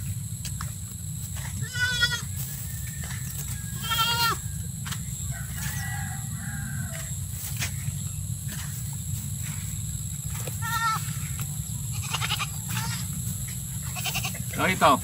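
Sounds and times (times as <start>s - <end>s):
low rumble: 0.0s - 15.0s
farm animal bleating: 1.4s - 4.6s, 10.3s - 15.0s.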